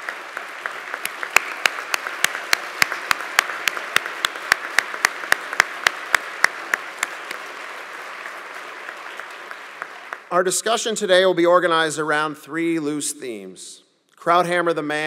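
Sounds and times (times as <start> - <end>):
close hand claps: 0.0 - 10.3
audience applauding: 0.0 - 10.5.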